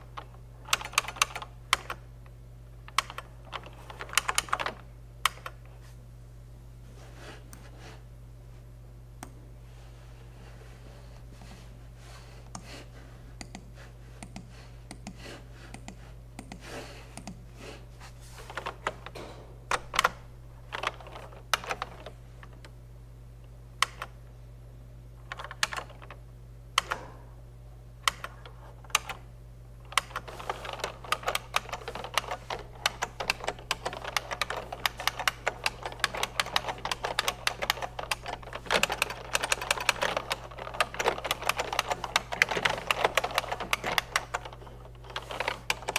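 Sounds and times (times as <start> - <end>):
steady low hum: 0.0 - 45.9
typing on computer keyboard: 0.2 - 2.0, 2.9 - 5.6, 19.7 - 22.1, 25.3 - 26.2, 29.9 - 45.9.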